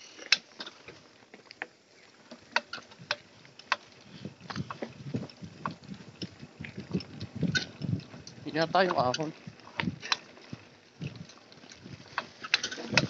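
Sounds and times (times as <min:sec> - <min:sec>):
bike clicks and knocks: 0:00.0 - 0:13.0
low rolling rumble: 0:03.0 - 0:13.0.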